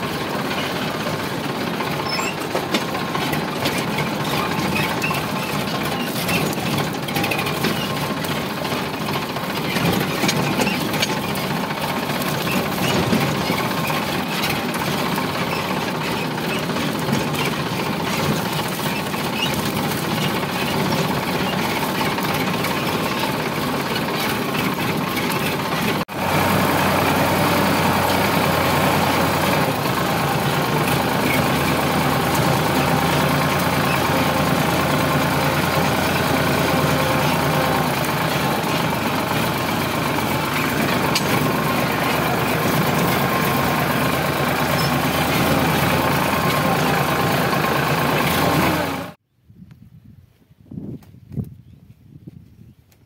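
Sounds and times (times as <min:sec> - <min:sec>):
tractor diesel engine running: 0:00.0 - 0:49.2.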